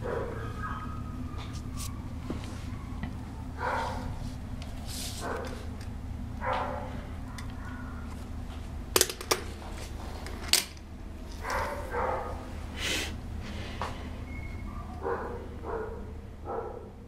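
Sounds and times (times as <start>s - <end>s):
dog barking: 0.0s - 4.2s, 5.2s - 5.6s, 6.4s - 8.0s, 11.4s - 12.5s, 14.7s - 17.0s.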